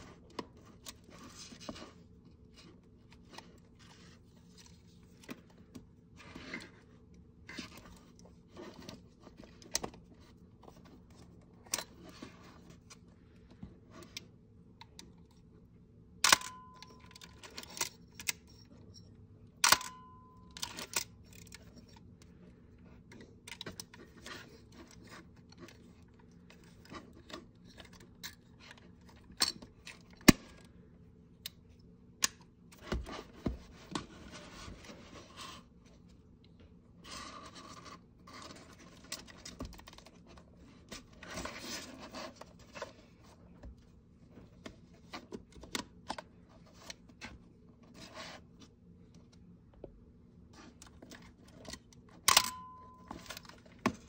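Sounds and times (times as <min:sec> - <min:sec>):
sharp camera clicks with ring: 0:16.2 - 0:18.4, 0:19.6 - 0:21.1, 0:52.3 - 0:52.7.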